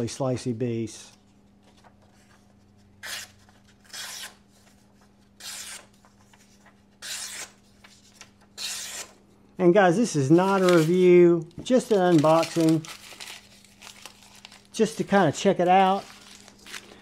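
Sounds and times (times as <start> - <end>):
knife slicing paper: 7.0 - 7.7.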